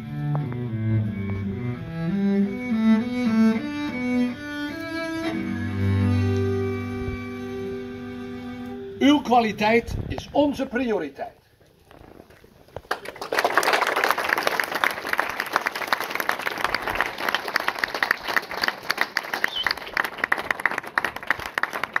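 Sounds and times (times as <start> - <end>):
audience applauding: 12.8 - 22.0.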